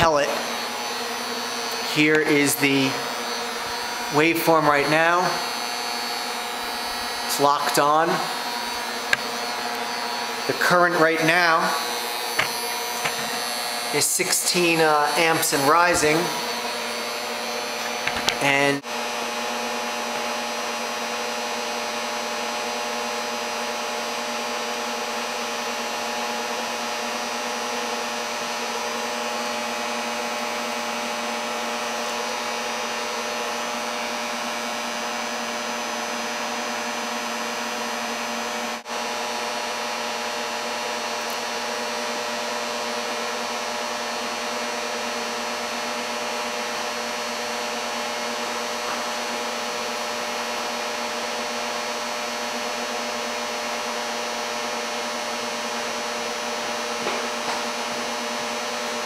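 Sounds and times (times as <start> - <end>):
constant electrical hum: 0.0 - 23.0
cooling fan whirring: 0.0 - 23.1.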